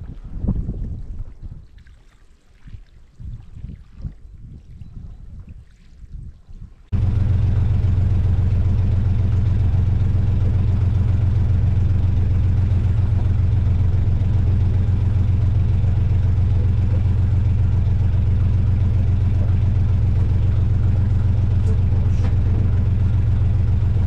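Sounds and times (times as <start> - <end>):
boat engine humming: 6.9 - 24.0.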